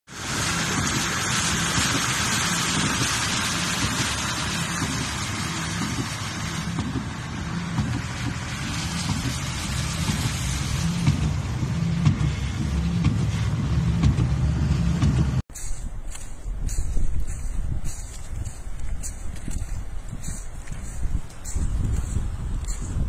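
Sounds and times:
loud hiss of rain or rushing air: 0:00.1 - 0:14.6
car engine humming: 0:00.1 - 0:23.0.

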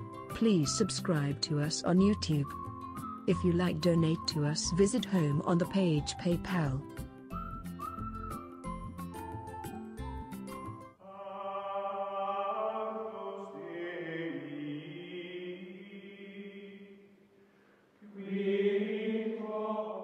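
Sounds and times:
chant-like voices holding chords: 0:11.0 - 0:17.0, 0:18.0 - 0:20.0.

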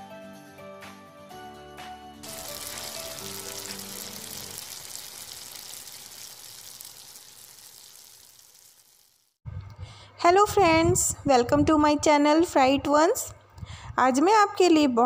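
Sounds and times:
frying pan sizzling: 0:02.2 - 0:09.4.

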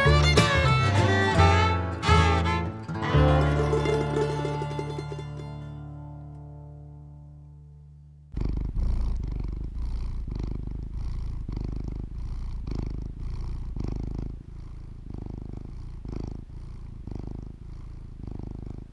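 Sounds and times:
cat purring: 0:07.9 - 0:18.9.

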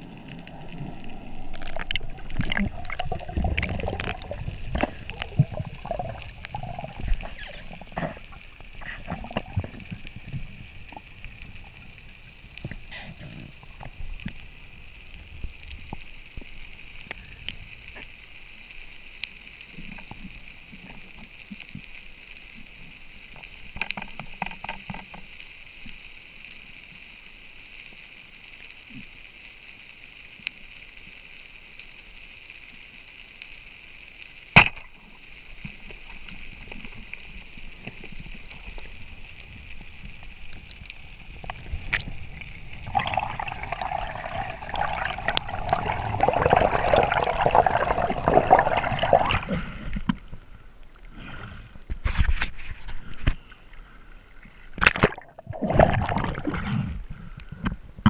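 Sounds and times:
water rushing and sloshing: 0:00.0 - 0:17.0, 0:34.6 - 0:50.4, 0:54.5 - 0:57.0
underwater hiss: 0:00.0 - 0:21.2, 0:25.2 - 0:51.9.

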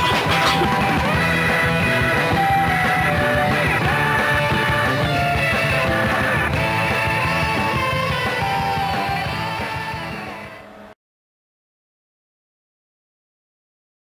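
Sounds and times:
rock music with guitar: 0:00.0 - 0:10.8.

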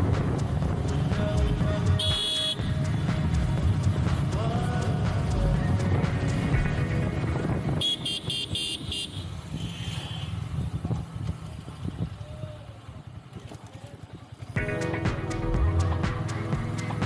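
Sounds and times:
motorcycle engine slowing down: 0:00.0 - 0:07.8, 0:14.5 - 0:17.0
road noise: 0:00.0 - 0:17.0
horn short toots: 0:01.0 - 0:03.7.

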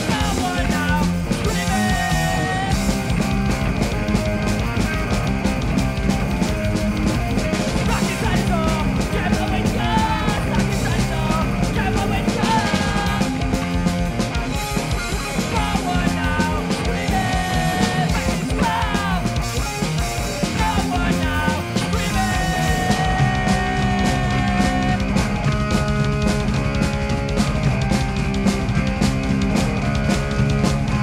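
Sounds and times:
person singing: 0:00.0 - 0:03.0, 0:07.7 - 0:13.6, 0:15.3 - 0:19.4, 0:20.2 - 0:25.1
punk rock band playing live: 0:00.0 - 0:31.0.

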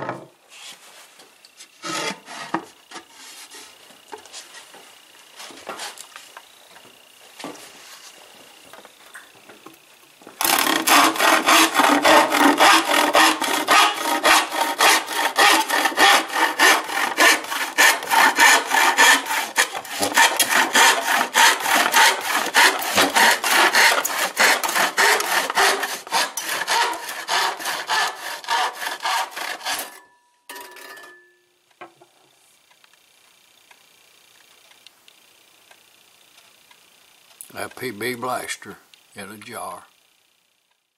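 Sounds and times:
hand saw cutting wood: 0:01.6 - 0:03.8, 0:10.4 - 0:30.1.

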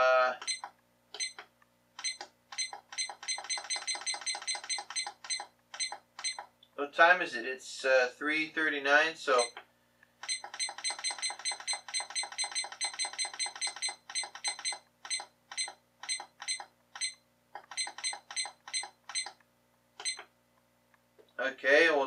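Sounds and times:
alarm clock short electronic beeps: 0:00.4 - 0:01.4, 0:02.0 - 0:06.5, 0:09.4 - 0:09.6, 0:10.2 - 0:19.4, 0:20.0 - 0:20.3.

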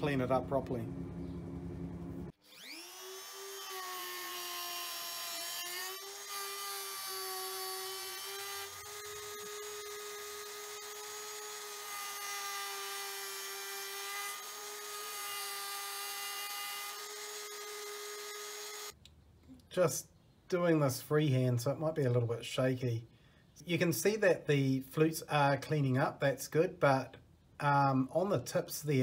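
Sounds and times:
rotary tool high whine: 0:01.9 - 0:19.0.

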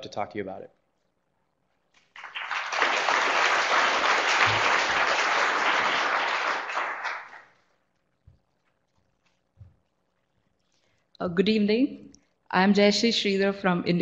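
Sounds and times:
audience applauding: 0:02.0 - 0:07.6.

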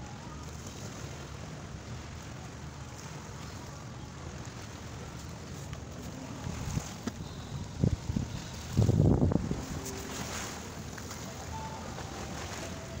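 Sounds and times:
small waves washing in: 0:00.0 - 0:13.0
wind rumble on microphone: 0:04.4 - 0:13.0.

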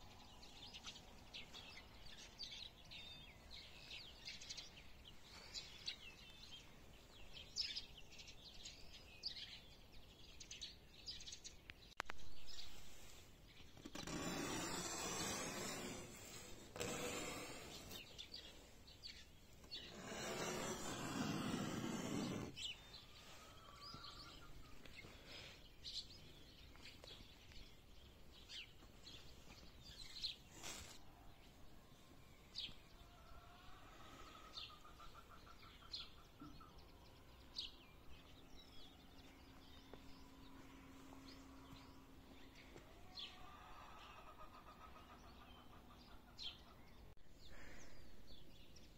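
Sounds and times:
songbirds chirping: 0:00.0 - 0:48.9
rustling noise: 0:29.0 - 0:31.1.

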